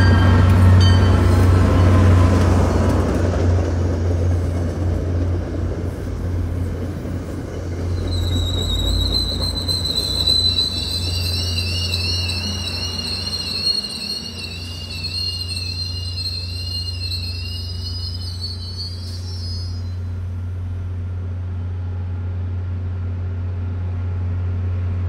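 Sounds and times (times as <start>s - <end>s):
train brakes squealing: 0.0s - 3.1s, 7.1s - 20.3s.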